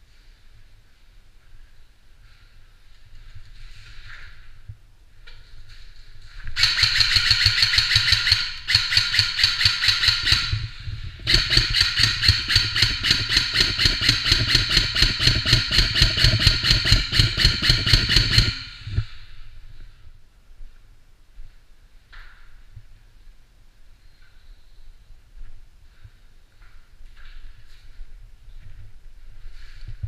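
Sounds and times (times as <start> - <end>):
airsoft rifle rapid shots: 6.6 - 19.0.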